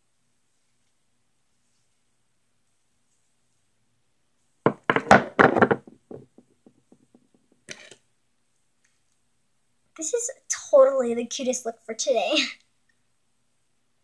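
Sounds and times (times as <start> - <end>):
loud knocks and thumps: 4.7 - 7.3.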